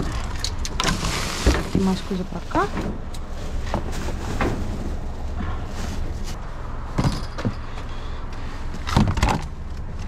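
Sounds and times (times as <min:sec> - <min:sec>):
rustling through trash: 0:00.0 - 0:07.7.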